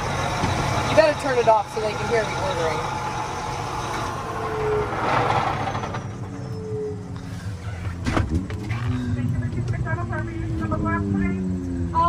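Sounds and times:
tractor diesel engine idling: 0:00.0 - 0:08.1.

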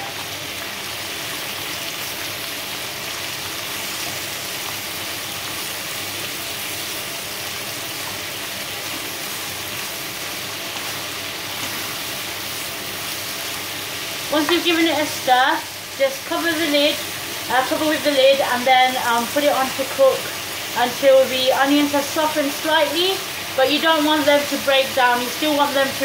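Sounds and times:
onions sizzling in oil: 0:00.0 - 0:26.0
wooden spoon stirring in pan: 0:08.0 - 0:21.1.

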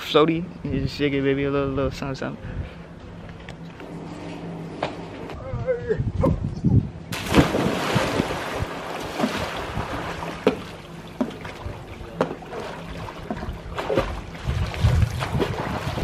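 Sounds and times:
person jumping into pool splash: 0:07.1 - 0:16.0
water splashing from swimming: 0:07.2 - 0:16.0.

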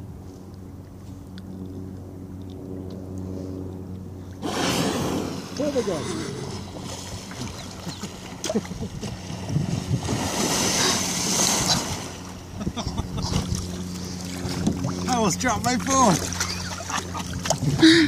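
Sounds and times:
water splashing: 0:04.4 - 0:18.0
wind on microphone: 0:08.4 - 0:15.1.

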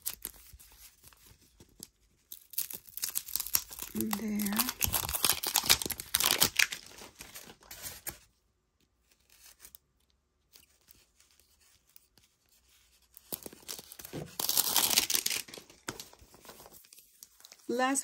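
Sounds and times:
plastic wrapping tearing and crinkling: 0:00.0 - 0:08.2, 0:12.9 - 0:17.8.

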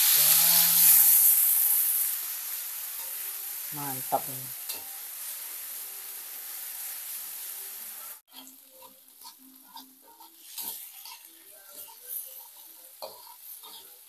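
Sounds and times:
paste sizzling in hot oil: 0:00.0 - 0:14.0
metal spatula stirring: 0:04.6 - 0:05.0, 0:08.2 - 0:14.0.

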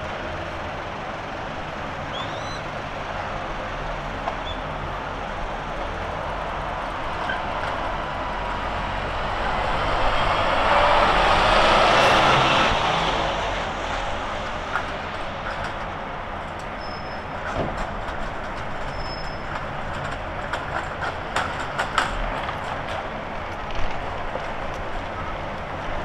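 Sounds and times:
passing vehicle rumble: 0:00.0 - 0:18.8
street noise: 0:00.0 - 0:26.0.

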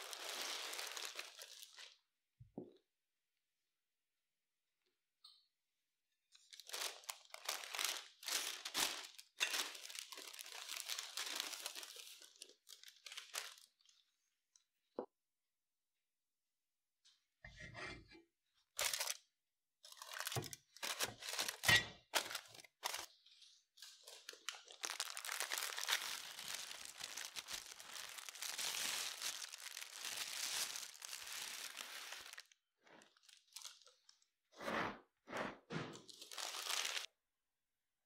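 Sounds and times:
rustling and crinkling: 0:00.0 - 0:02.0, 0:19.9 - 0:34.2.

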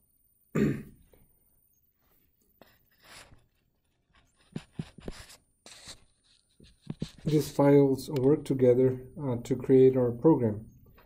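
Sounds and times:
stylus tapping and scratching: 0:02.6 - 0:08.5.

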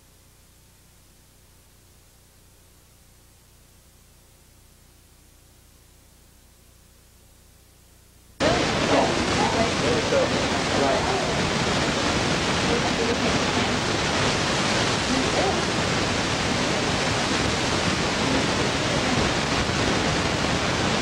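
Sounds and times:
steady loud hiss: 0:00.0 - 0:21.0
faint indistinct voices: 0:08.4 - 0:11.6.

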